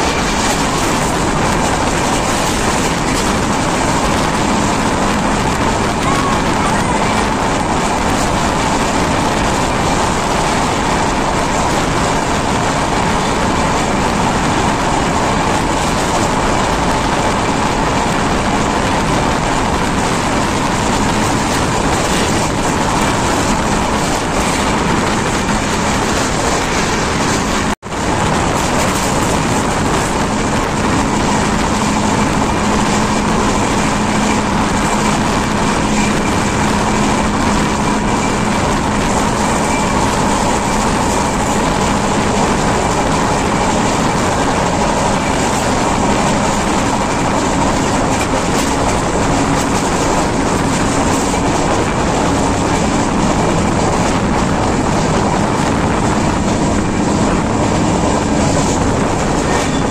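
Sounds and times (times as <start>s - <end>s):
train running at speed: 0.0s - 59.9s.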